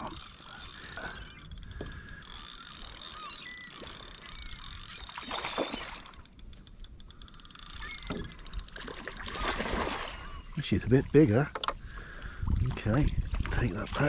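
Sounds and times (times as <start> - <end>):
fishing reel ticking rapidly: 0.0 - 8.9
water lapping on hull: 0.0 - 14.0
wind: 0.0 - 14.0
water splash: 8.8 - 10.3.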